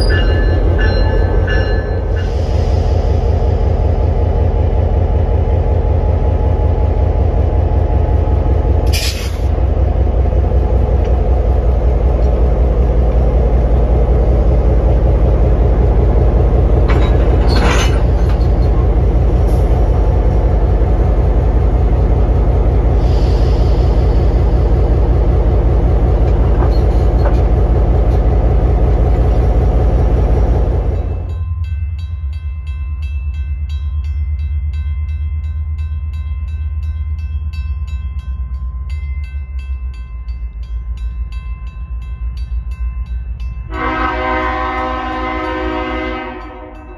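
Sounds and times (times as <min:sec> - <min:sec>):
railroad crossing bell ringing: 0:00.0 - 0:02.7, 0:30.8 - 0:46.9
diesel locomotive engine running: 0:00.0 - 0:46.9.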